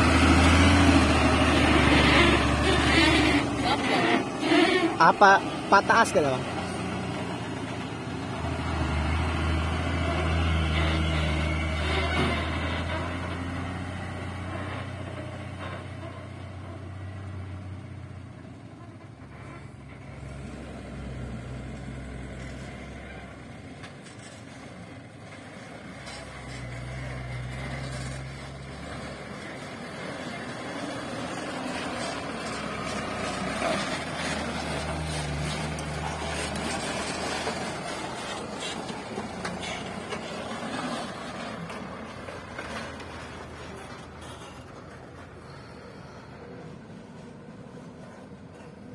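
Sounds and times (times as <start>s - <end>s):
trucks engine hum: 0.0s - 48.9s
tyre and road noise: 0.0s - 48.9s.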